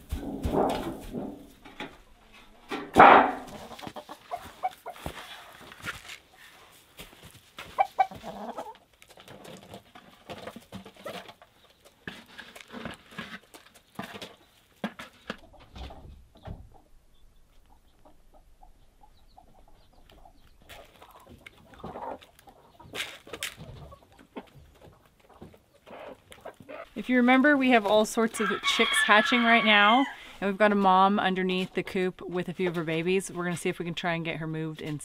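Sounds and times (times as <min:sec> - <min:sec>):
chickens clucking: 0:03.4 - 0:06.7, 0:07.6 - 0:12.3, 0:13.5 - 0:27.0.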